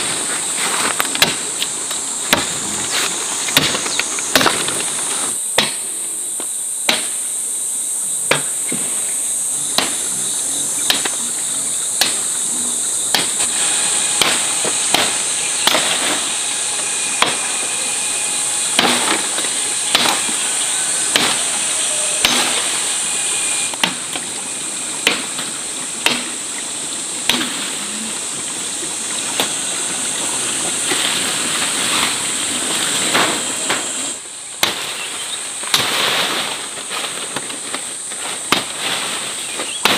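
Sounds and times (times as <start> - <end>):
chopping blows: 0.0 - 7.3, 9.6 - 24.3, 25.0 - 26.6, 27.2 - 27.9, 34.6 - 39.9
insects droning: 0.0 - 39.9.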